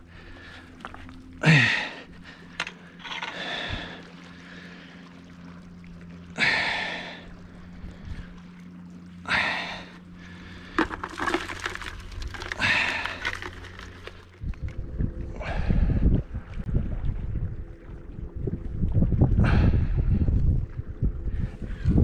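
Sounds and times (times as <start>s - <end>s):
water splashing and pouring: 10.6s - 14.4s.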